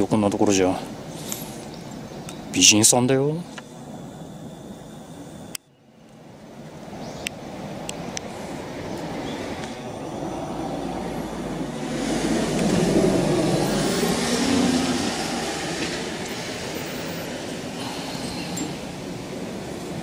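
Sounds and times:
heavy vehicle rumbling past: 0:08.5 - 0:20.0.

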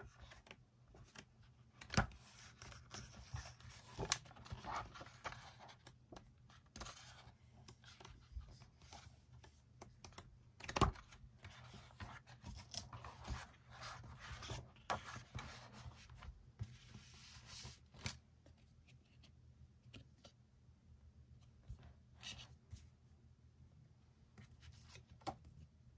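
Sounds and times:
book pages turning: 0:00.0 - 0:20.4.

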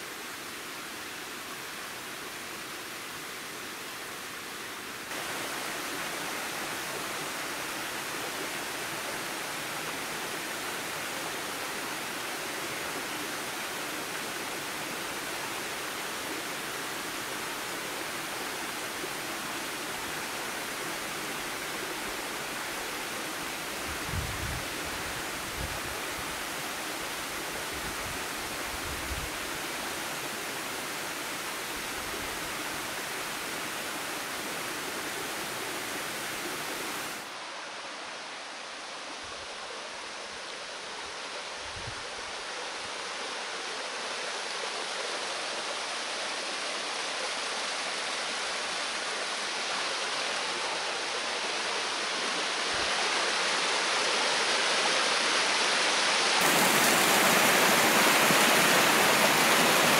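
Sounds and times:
waterfall rushing: 0:05.1 - 0:38.0, 0:43.4 - 0:59.9.

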